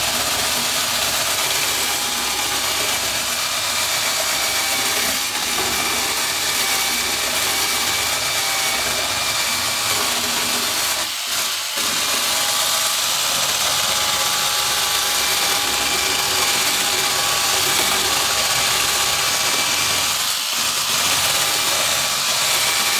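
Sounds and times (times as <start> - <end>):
abrasive wheel sanding wood: 0.0 - 22.9
electric drill motor whine: 0.0 - 22.9.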